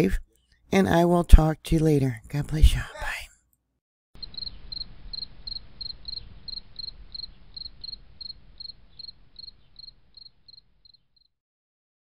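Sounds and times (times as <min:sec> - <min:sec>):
cricket chirping: 0:04.2 - 0:11.3.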